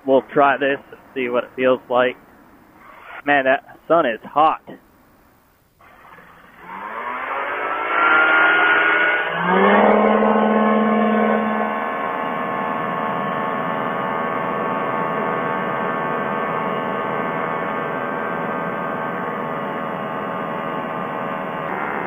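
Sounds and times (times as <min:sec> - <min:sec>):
engine and propeller throttling up: 0:05.8 - 0:22.0.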